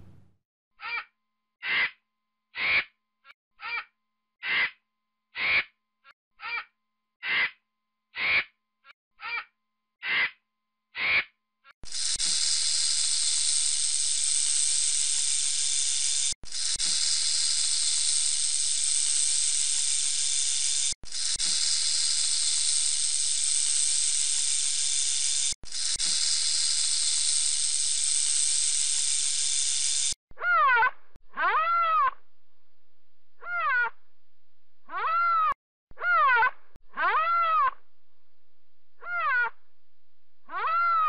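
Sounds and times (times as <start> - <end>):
rattlesnake tail rattle: 11.9 - 30.2.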